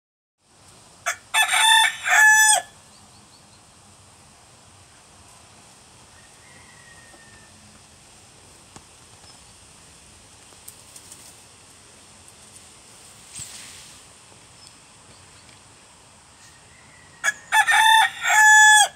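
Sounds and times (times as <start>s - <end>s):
rooster crowing: 1.0s - 2.8s, 6.1s - 7.8s, 16.4s - 18.9s.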